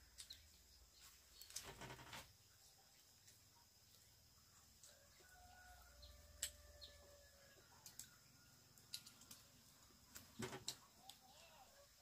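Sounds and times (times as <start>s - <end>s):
rooster crowing faintly: 4.8s - 9.0s.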